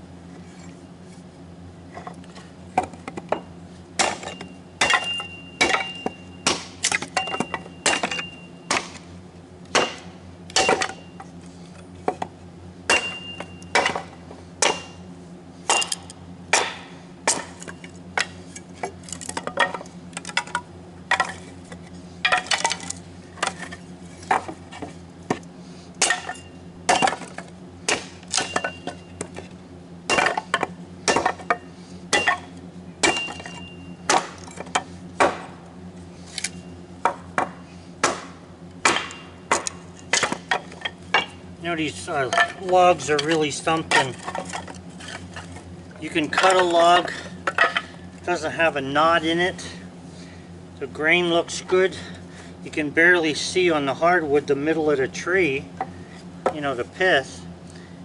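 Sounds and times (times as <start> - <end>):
kindling being chopped: 4.0 - 9.0, 9.7 - 11.0, 12.9 - 15.0, 26.0 - 29.4, 30.1 - 31.5, 32.1 - 35.6, 37.0 - 41.3.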